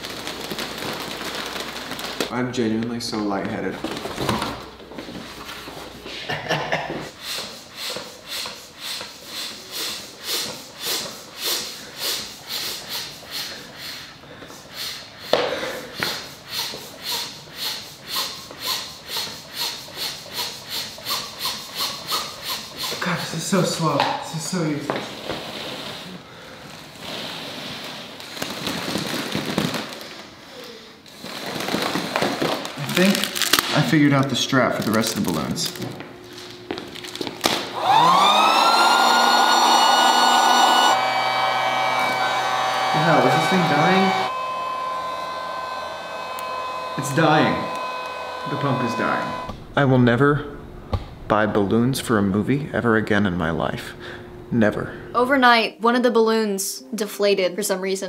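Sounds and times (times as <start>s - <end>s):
balloon crinkling as inflated: 0.0s - 5.8s, 25.1s - 37.8s
air pump hissing: 7.1s - 23.6s, 37.1s - 49.6s.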